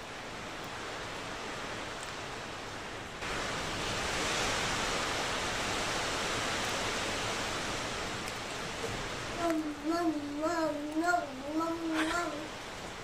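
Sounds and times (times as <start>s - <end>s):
rushing hiss: 3.2s - 10.8s.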